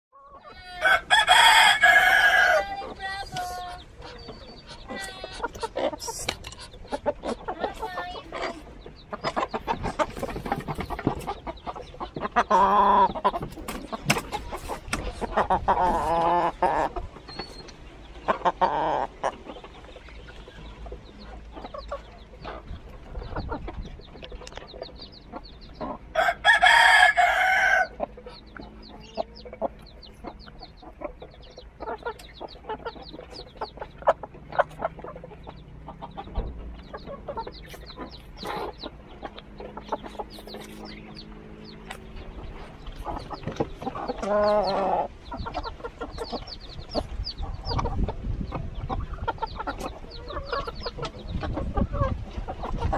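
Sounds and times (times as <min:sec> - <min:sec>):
chickens clucking: 0:00.1 - 0:52.9
rooster crowing: 0:00.7 - 0:02.8, 0:26.1 - 0:27.9.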